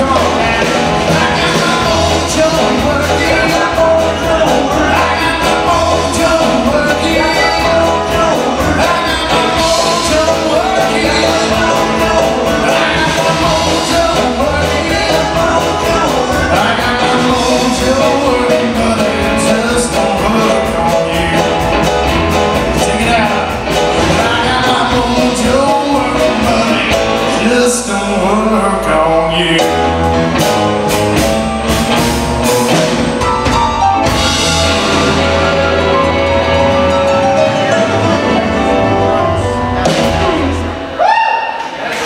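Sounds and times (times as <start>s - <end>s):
person singing: 0.0s - 30.6s
blues band playing: 0.0s - 42.0s.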